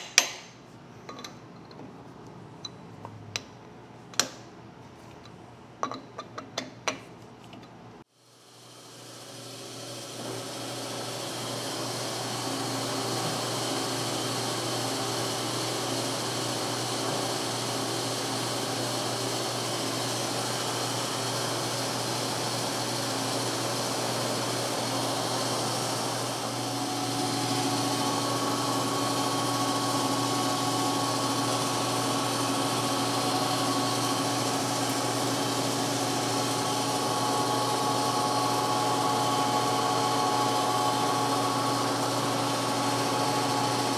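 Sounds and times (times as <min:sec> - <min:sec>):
metal lathe running: 0:09.0 - 0:43.9
drill cutting whine: 0:10.2 - 0:43.9.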